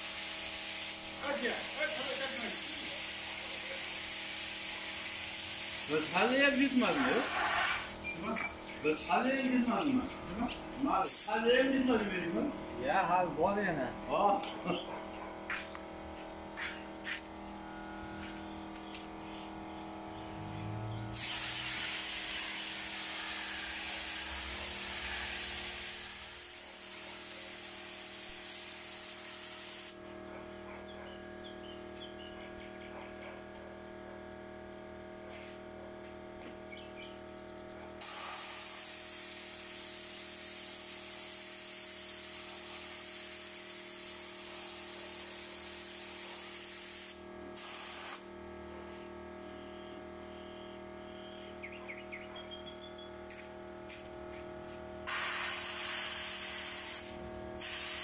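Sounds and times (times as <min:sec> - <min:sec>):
spray gun hissing: 0:00.0 - 0:11.5, 0:21.1 - 0:30.0, 0:38.0 - 0:48.2, 0:55.0 - 0:58.0.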